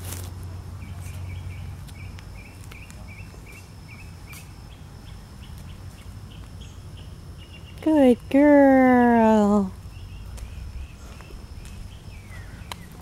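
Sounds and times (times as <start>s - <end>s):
footsteps on path: 0.0s - 3.7s, 10.0s - 13.0s
outdoor background noise: 0.0s - 13.0s
bird chirping: 0.8s - 8.1s, 9.2s - 13.0s.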